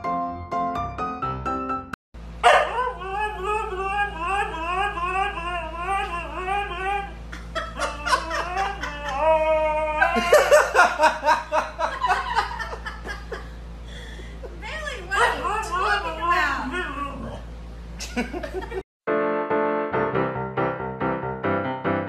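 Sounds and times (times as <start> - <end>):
dog howling and yipping: 2.4 - 10.4
person laughing: 3.3 - 14.6.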